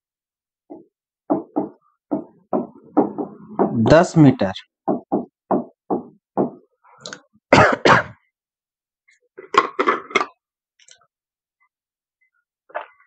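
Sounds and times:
man clearing his throat: 7.5 - 8.2
man coughing: 7.5 - 8.3.

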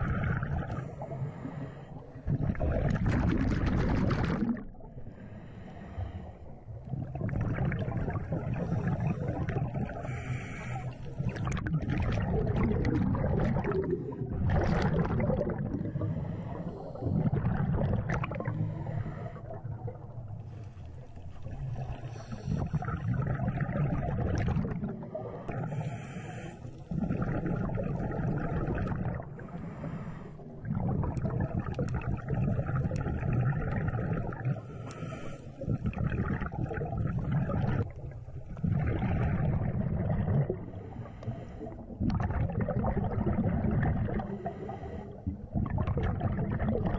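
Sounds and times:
diver exhaling bubbles underwater: 0.0 - 1.6, 2.2 - 5.1, 6.8 - 20.3, 21.4 - 29.7, 30.5 - 46.9
breathing through a regulator: 0.2 - 2.2, 5.0 - 6.6, 8.5 - 11.5, 15.8 - 17.4, 18.3 - 19.7, 21.9 - 23.3, 25.0 - 27.2, 29.2 - 30.7, 34.1 - 35.8, 40.6 - 42.0, 44.2 - 45.4.

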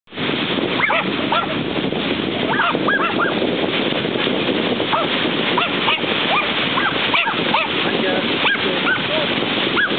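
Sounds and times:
surf: 0.1 - 9.9
wind: 0.1 - 9.9
dogs yelping and barking: 0.8 - 1.6, 2.5 - 3.4, 4.9 - 7.8.

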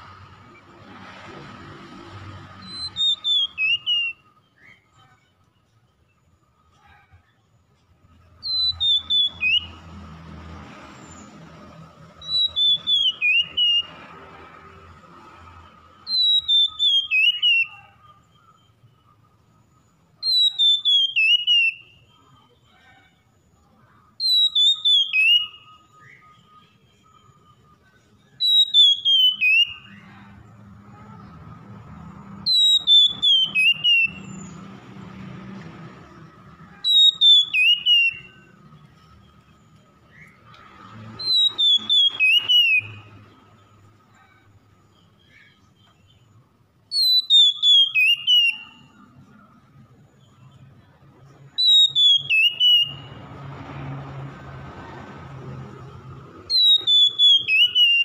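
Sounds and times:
bird singing whistled phrase: 2.6 - 5.0, 8.4 - 9.8, 12.2 - 13.9, 16.1 - 19.0, 20.2 - 22.3, 24.2 - 30.0, 32.5 - 34.6, 36.8 - 38.5, 41.2 - 43.1, 46.9 - 49.0, 51.6 - 53.2, 56.5 - 58.0.

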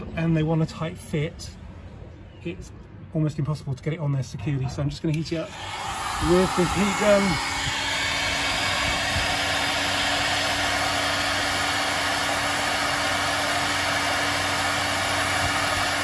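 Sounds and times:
heat gun blowing air: 5.4 - 16.0.

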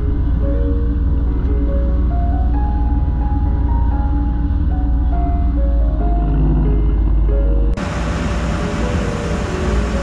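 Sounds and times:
background music: 0.0 - 10.0
motorboat engine running: 0.0 - 10.0
rushing water: 7.8 - 10.0.

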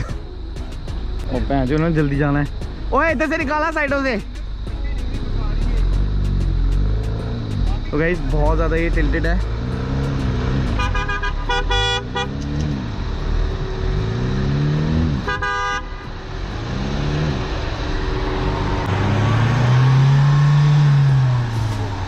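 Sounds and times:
engine revving hard: 8.9 - 15.4, 16.3 - 22.0
car horn beeps: 10.5 - 12.6, 15.2 - 16.2.

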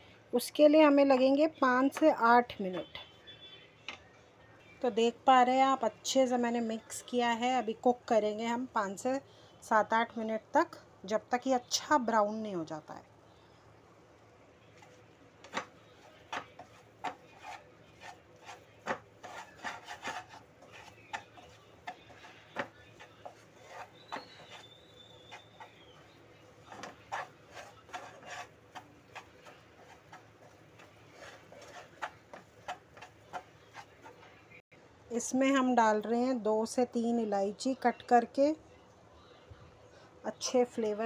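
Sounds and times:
spatula scraping a pan: 14.8 - 34.6.

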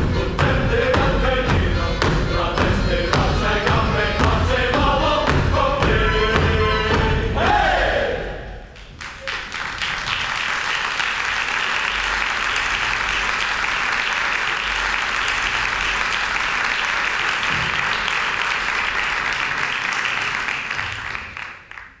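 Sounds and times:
audience applauding: 8.8 - 22.0.

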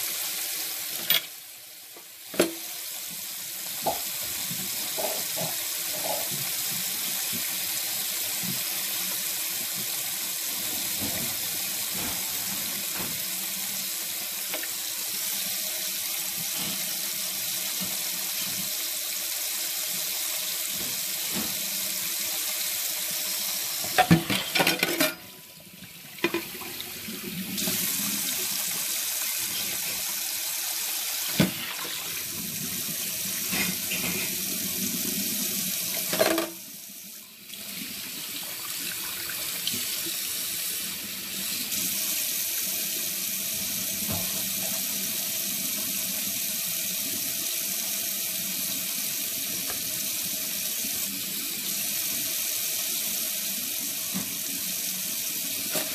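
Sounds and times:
tap running into sink: 3.8 - 6.6, 10.8 - 13.3, 20.7 - 21.8, 31.3 - 32.0.

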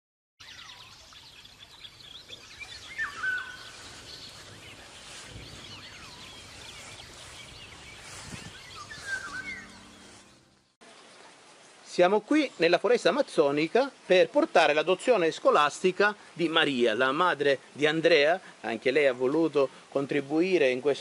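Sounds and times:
birds whistling calls: 0.4 - 10.7
steady background hiss: 0.5 - 21.0.

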